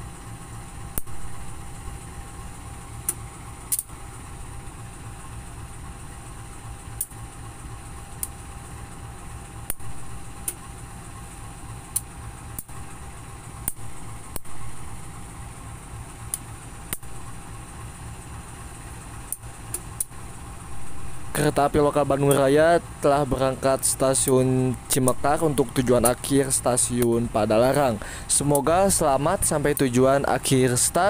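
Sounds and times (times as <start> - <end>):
diesel locomotive idling: 0.0 - 31.0
steady hum: 0.0 - 31.0
sharp ticks: 3.0 - 4.0, 7.0 - 7.2, 13.6 - 14.5, 16.3 - 17.3, 22.2 - 22.6, 23.2 - 31.0.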